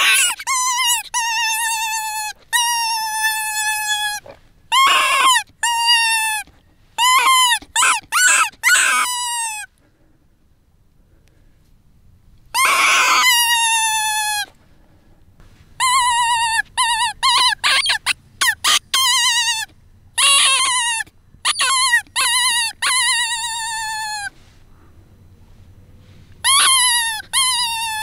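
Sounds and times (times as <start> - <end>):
fox call wavering cries: 0.0 - 9.7, 12.5 - 14.6, 15.8 - 24.5, 26.4 - 28.0.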